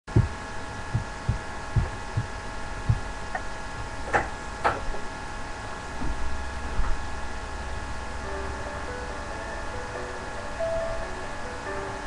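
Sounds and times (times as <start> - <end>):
low thumps: 0.1 - 4.3
electrical hum: 0.1 - 12.0.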